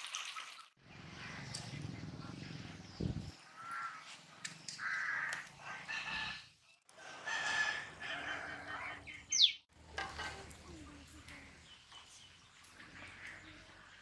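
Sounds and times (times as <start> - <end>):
rooster crowing: 7.0 - 8.8.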